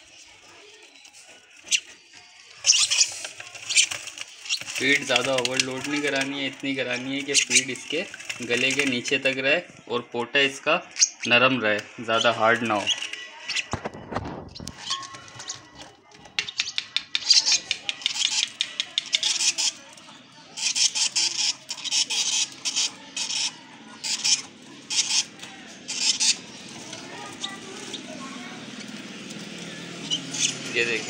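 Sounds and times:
chicks raspy begging chirps: 0.0s - 9.2s, 14.5s - 31.0s.

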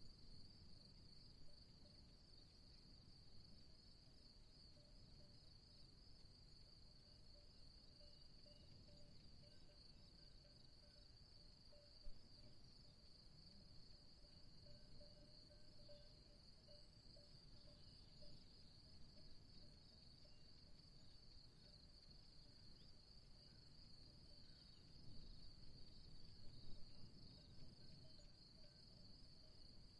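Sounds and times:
insect chorus trilling: 8.0s - 11.1s, 13.9s - 29.9s.

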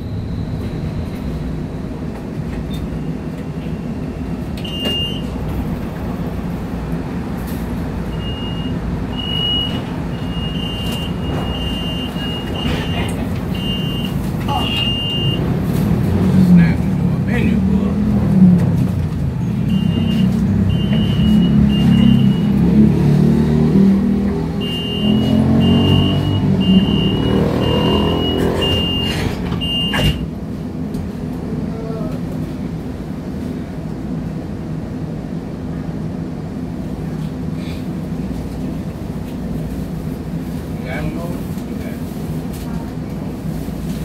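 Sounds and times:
street traffic: 0.0s - 44.0s
streetcar rumble: 0.0s - 44.0s
high-pitched electronic beeps: 24.6s - 30.0s.

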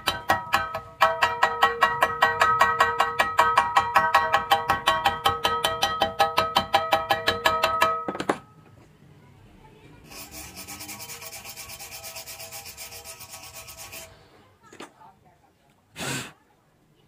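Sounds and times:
metal rod scraping weld bead: 10.1s - 14.2s.

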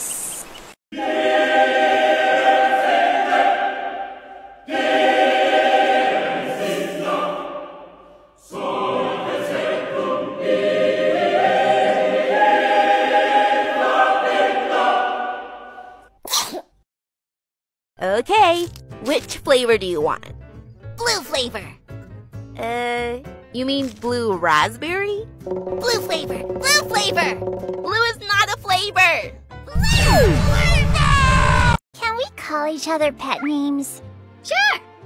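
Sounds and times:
choir singing held chords: 0.9s - 16.1s, 25.5s - 27.9s.

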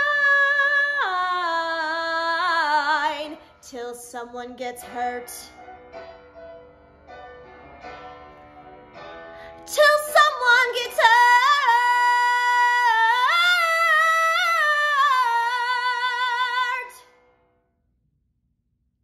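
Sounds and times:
woman singing unaccompanied: 9.7s - 17.0s.

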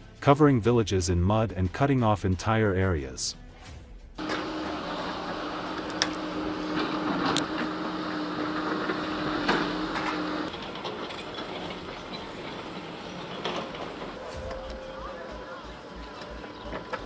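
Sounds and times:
machine engine running: 4.2s - 17.0s
outdoor background noise: 4.2s - 17.0s.

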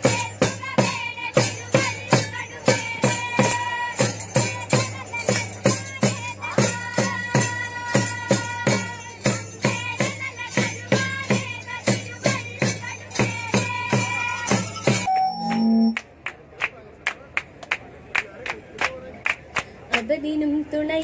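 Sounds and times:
hand drums and trays beaten: 0.0s - 16.0s
voices singing long notes: 15.1s - 16.0s.

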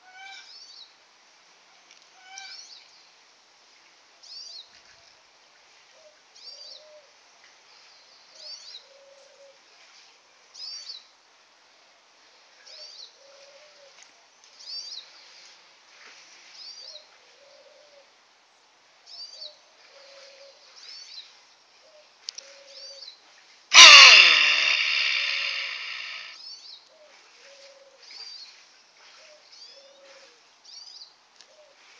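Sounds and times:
capybara barking: 23.7s - 26.3s.

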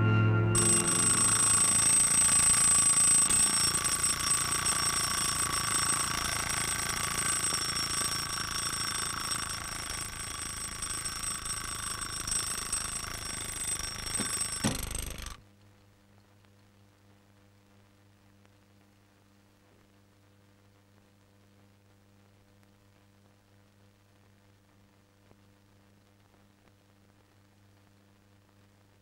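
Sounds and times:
alarm clock ringing: 0.5s - 15.4s.

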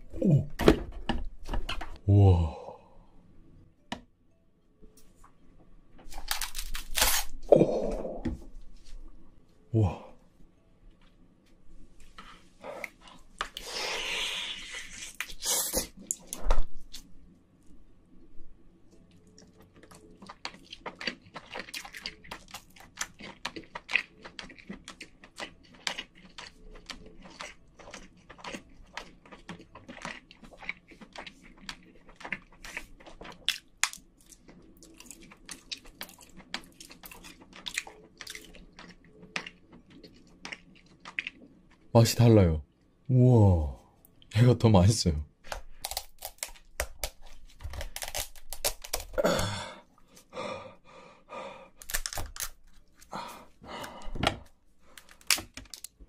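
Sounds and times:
wet chewing clicks and smacks: 19.1s - 41.9s.

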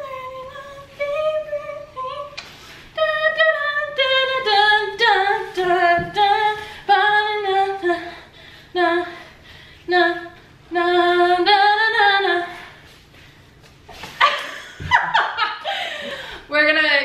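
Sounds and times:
woman singing unaccompanied: 0.0s - 2.4s, 3.0s - 9.3s, 9.9s - 12.7s.

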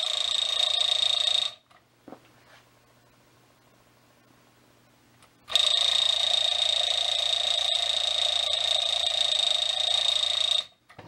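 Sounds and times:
alarm clock bell ringing: 0.0s - 1.6s, 5.5s - 10.8s.

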